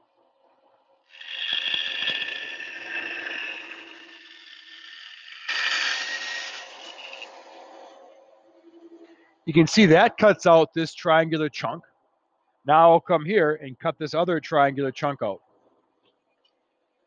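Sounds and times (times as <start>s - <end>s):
bandsaw cutting wood: 1.1s - 8.1s.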